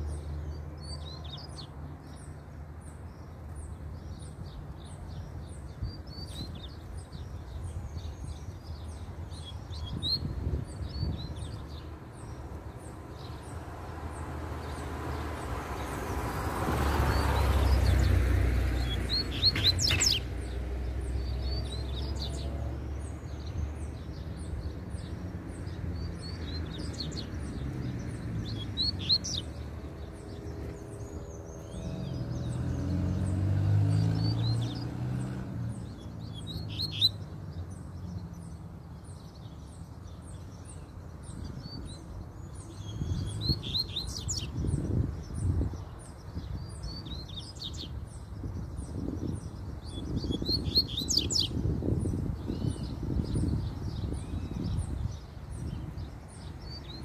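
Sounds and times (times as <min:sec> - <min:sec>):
birds singing quick high notes: 0:18.8 - 0:20.6.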